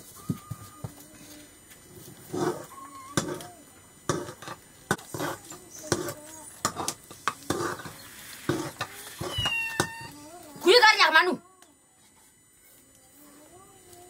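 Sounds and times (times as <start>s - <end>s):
stick scraping metal pot: 2.2s - 3.5s, 4.1s - 10.1s.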